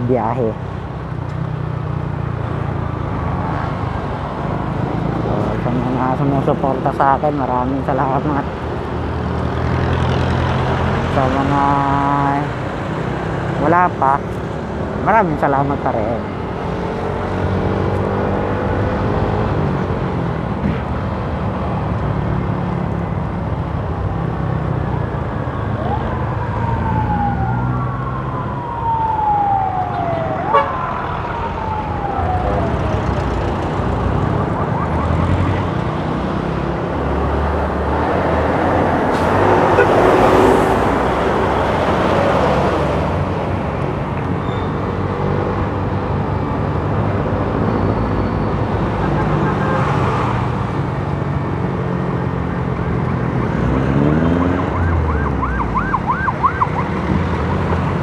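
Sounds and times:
city traffic: 0.0 - 58.0
loud rush of passing noise: 16.2 - 58.0
siren wailing: 25.0 - 35.7, 54.2 - 57.0.

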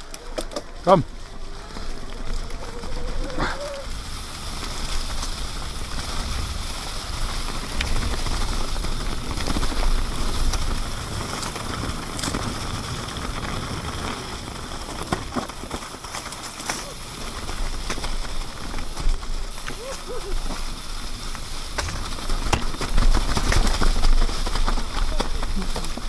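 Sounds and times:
bike clicks and rattles: 0.0 - 26.0
bike tyres rolling on wet leaves: 0.0 - 26.0.

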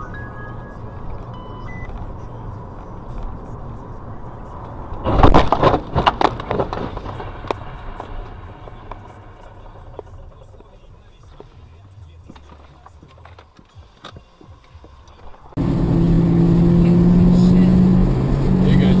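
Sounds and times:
short beeping tones: 0.0 - 1.9
car driving rumble: 0.0 - 19.0
loud crunching crash impacts: 5.0 - 10.4.

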